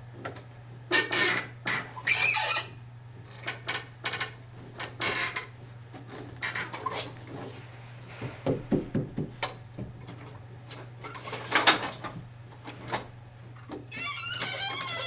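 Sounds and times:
carpet scraping and knocking: 8.1s - 10.0s.

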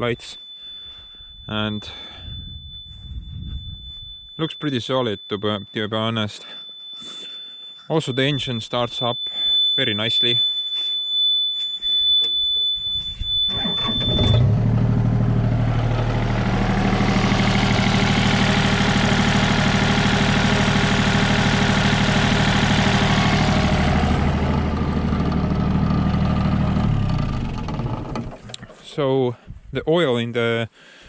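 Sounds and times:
man talking: 0.0s - 0.4s, 1.5s - 2.2s, 4.4s - 6.6s, 7.9s - 10.4s, 28.8s - 30.7s
high warning beep: 0.0s - 25.2s
diesel engine starting and idling: 13.3s - 28.9s.

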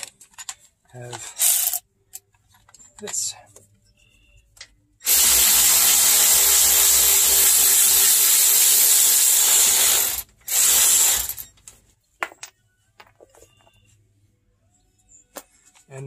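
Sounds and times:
power tool hissing whir: 5.0s - 11.4s.

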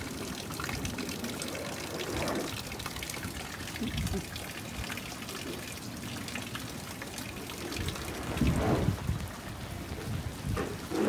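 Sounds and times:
rain falling on water and paving: 0.0s - 11.0s
low rumble: 7.5s - 10.7s.

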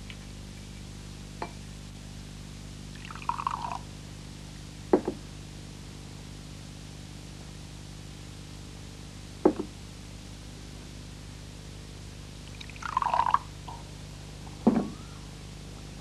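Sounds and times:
liquid poured into glass: 3.0s - 3.8s, 12.6s - 13.4s.

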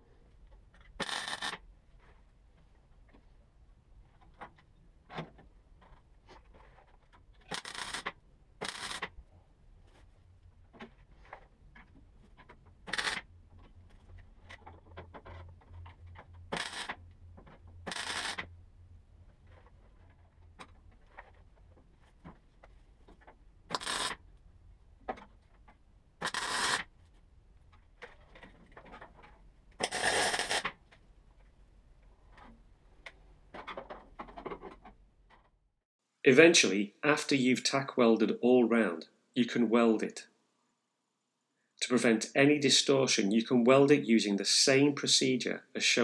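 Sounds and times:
welding bursts: 7.5s - 9.1s, 17.9s - 18.4s
low steady hum: 8.2s - 26.2s.

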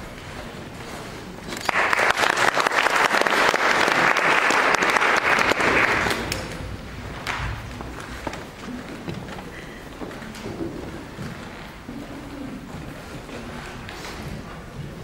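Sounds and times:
audience applauding: 1.6s - 6.6s.

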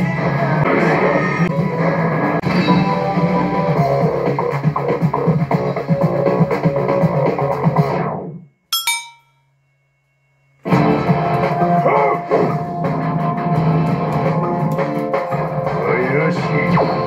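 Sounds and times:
short bright chime: 8.8s - 9.4s.

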